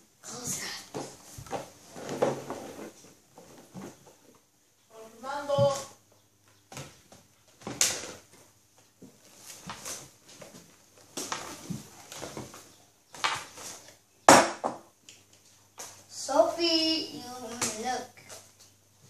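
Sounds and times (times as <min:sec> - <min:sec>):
rustling of things handled: 0:00.3 - 0:14.1.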